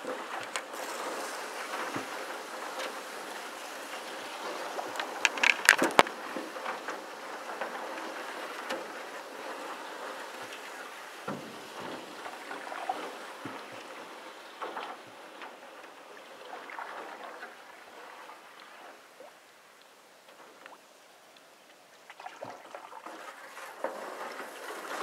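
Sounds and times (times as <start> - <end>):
reeds scraping along canoe hull: 0.0 - 25.0
sharp clicks and scrapes: 4.9 - 7.0.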